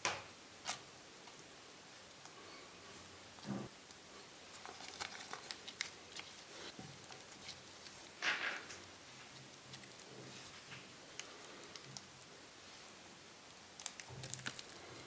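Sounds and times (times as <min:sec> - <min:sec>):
lettuce leaves crinkling: 0:04.5 - 0:12.0, 0:13.6 - 0:15.0.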